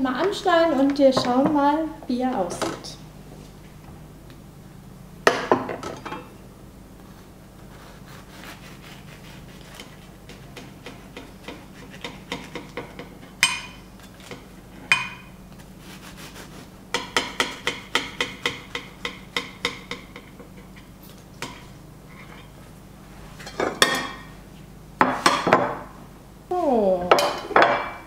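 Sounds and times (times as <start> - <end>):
knife sawing through crust: 7.6 - 12.2, 15.8 - 16.7
plates clattering: 23.4 - 24.3.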